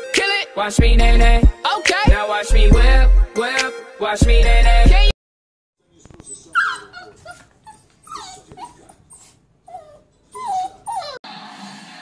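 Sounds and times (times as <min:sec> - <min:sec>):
puppy whimpering: 0:06.2 - 0:11.2.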